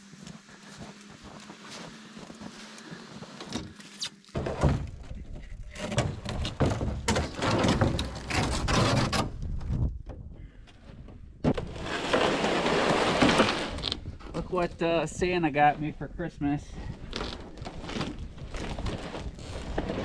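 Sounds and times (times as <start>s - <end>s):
knocks and scrapes of handling: 1.5s - 14.7s
box sliding on plastic bed liner: 11.5s - 13.9s.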